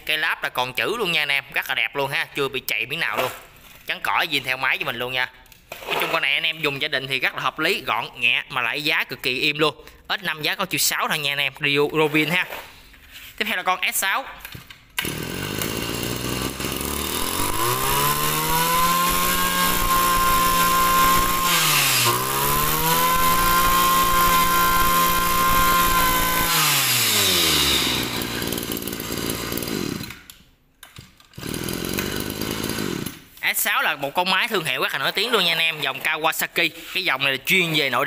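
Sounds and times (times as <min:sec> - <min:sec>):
brush cutter engine revving: 0:15.0 - 0:30.3, 0:31.4 - 0:33.4.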